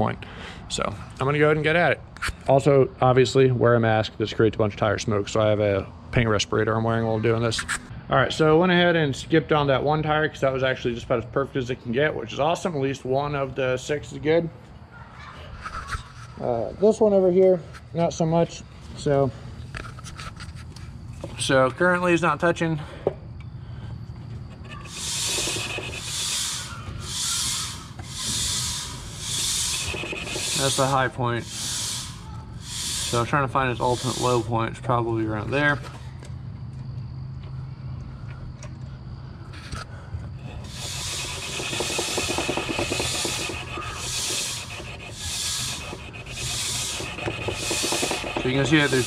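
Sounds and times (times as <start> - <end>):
grinder disc scraping rubber tire: 24.4 - 34.6, 40.5 - 49.0.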